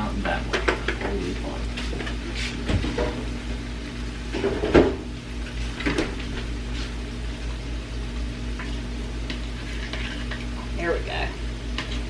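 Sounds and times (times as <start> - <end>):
steady low hum: 0.0 - 12.0
refrigerator door thump: 4.6 - 5.0.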